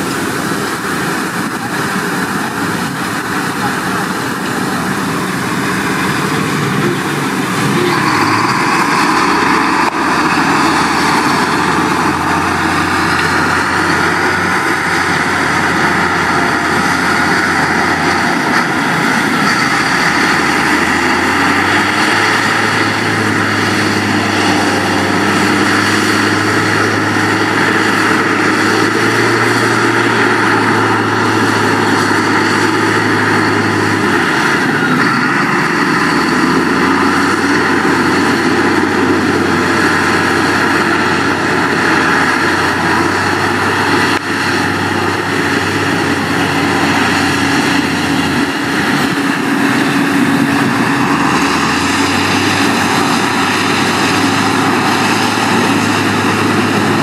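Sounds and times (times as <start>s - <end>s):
heavy diesel engine running: 0.0s - 57.0s.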